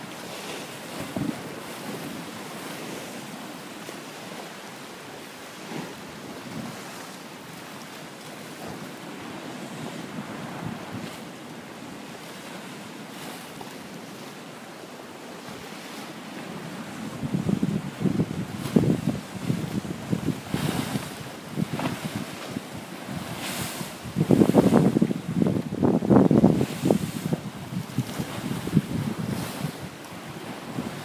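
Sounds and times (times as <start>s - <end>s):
waves crashing against seawall: 0.0s - 14.6s, 15.3s - 31.0s
wind buffeting microphone: 16.6s - 31.0s.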